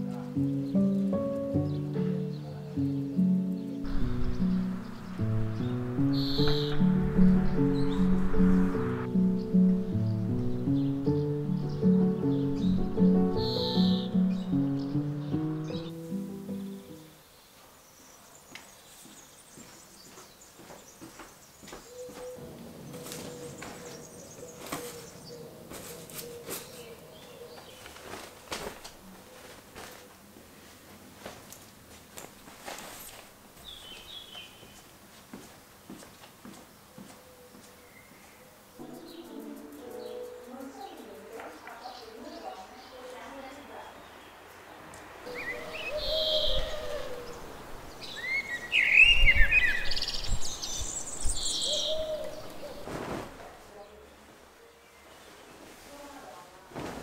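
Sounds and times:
songbirds singing: 0.0s - 28.1s, 33.6s - 35.0s, 36.7s - 52.9s
low drawn-out bird call: 3.8s - 10.2s, 45.3s - 50.2s
wind thumps on microphone: 3.9s - 10.6s
fabric rustling and flapping: 27.6s - 33.4s, 52.7s - 53.8s, 55.2s - 57.0s.

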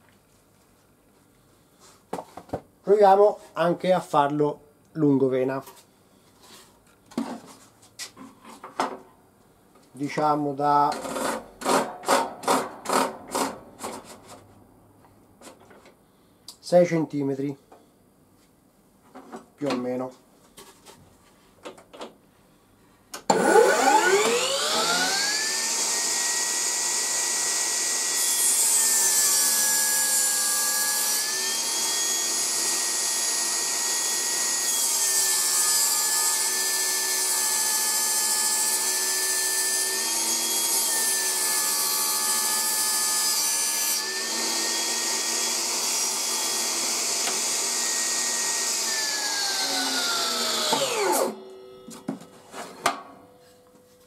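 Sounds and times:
table saw whine: 23.3s - 53.4s.

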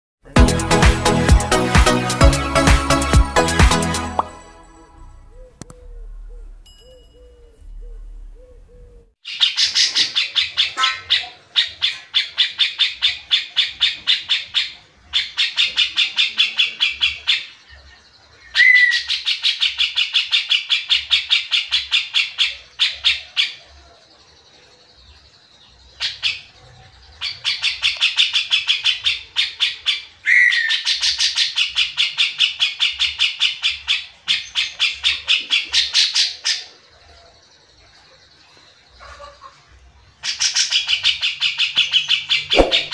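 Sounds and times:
bulbul singing rapid high notes: 42.6s - 42.9s.

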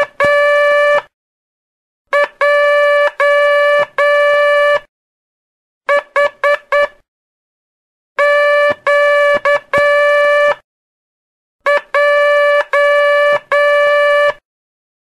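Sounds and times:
morse code tone: 0.0s - 1.1s, 2.2s - 4.9s, 8.2s - 10.6s, 11.7s - 14.4s.

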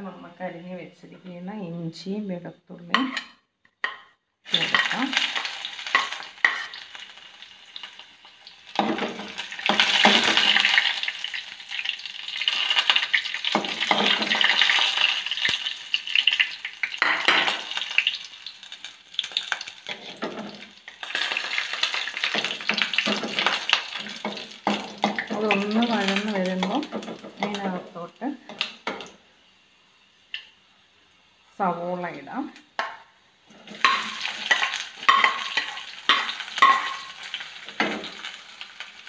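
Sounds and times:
garlic and ginger sizzling in oil: 2.8s - 39.0s
steel spoon scraping a pot: 33.5s - 37.1s.

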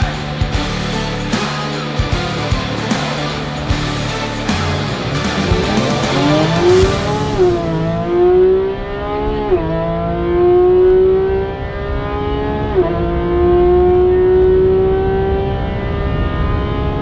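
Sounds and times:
car engine accelerating hard: 3.6s - 17.0s.

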